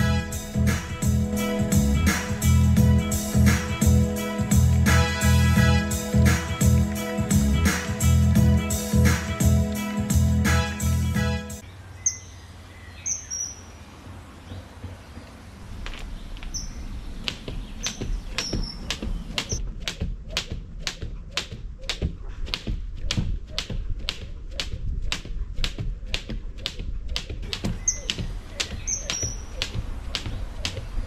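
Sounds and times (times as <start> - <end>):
jump rope slapping ground: 0.7 - 10.6, 17.2 - 31.0.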